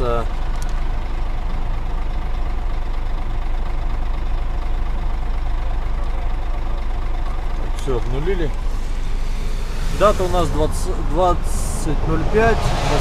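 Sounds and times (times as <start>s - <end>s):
diesel truck engine idling: 0.0s - 13.0s.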